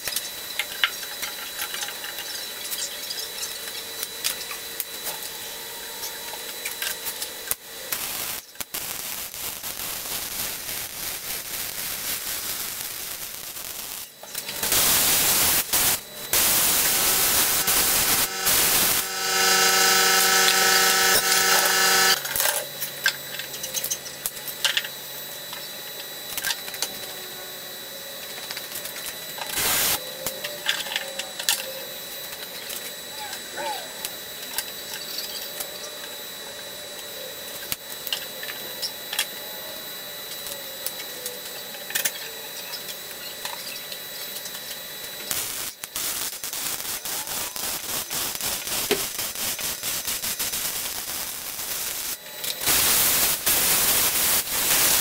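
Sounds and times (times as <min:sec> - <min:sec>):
high-pitched whine: 0:00.0 - 0:55.0
plasma cutter hissing: 0:07.9 - 0:22.3, 0:29.5 - 0:30.0, 0:45.3 - 0:55.0.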